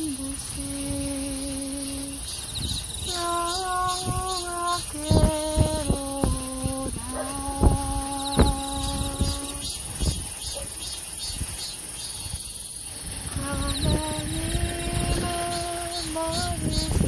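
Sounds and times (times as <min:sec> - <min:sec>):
person singing long notes: 0:00.0 - 0:02.3, 0:03.0 - 0:09.9, 0:13.1 - 0:17.0
crickets chirping: 0:00.0 - 0:17.0
high insect hiss: 0:00.0 - 0:17.0.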